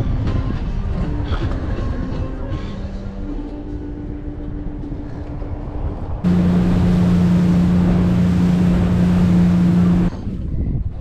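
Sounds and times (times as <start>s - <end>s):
wind: 0.0s - 11.0s
rushing water: 6.3s - 10.1s
outboard motor drone: 6.3s - 10.2s.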